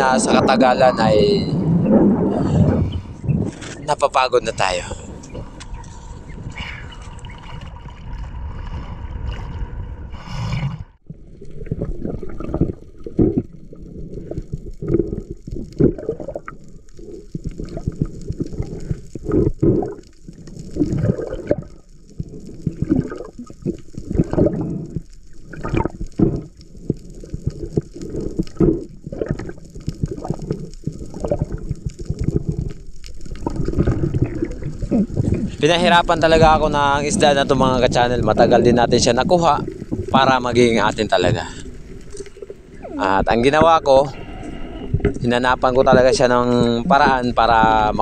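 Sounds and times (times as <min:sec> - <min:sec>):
underwater gurgling and sloshing: 0:00.0 - 0:48.0.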